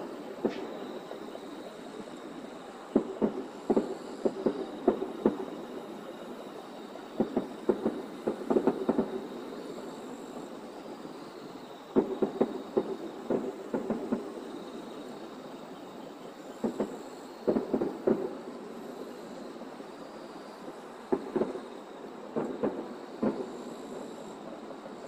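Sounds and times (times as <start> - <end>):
distant firework bangs: 0.3 - 1.6, 2.9 - 6.2, 7.0 - 9.4, 16.6 - 19.0, 22.3 - 24.2.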